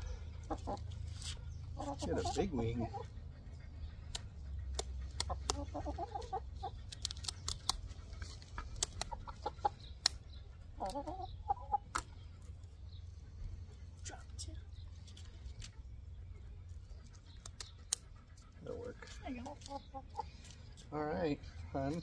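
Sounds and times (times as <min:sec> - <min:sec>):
hen clucking: 0:00.0 - 0:13.8, 0:16.4 - 0:22.0
scissors snipping feathers: 0:04.1 - 0:05.7, 0:06.7 - 0:09.2, 0:09.9 - 0:10.2, 0:17.3 - 0:18.1.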